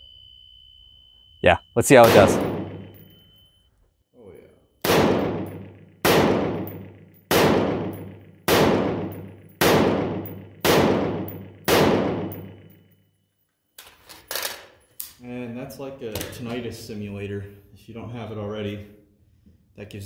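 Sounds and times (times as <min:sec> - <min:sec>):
rifle shots: 0:02.0 - 0:03.1, 0:04.8 - 0:12.8
metallic ringing after shots: 0:02.0 - 0:03.4, 0:04.9 - 0:12.9.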